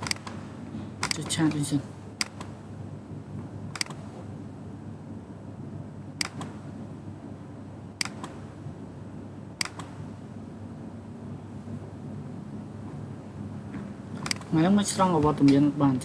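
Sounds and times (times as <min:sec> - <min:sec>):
computer mouse clicks: 0:00.0 - 0:00.4, 0:03.7 - 0:04.0, 0:06.2 - 0:06.5, 0:08.0 - 0:08.4, 0:09.6 - 0:09.9, 0:14.2 - 0:14.5
steady low hum: 0:00.0 - 0:16.0.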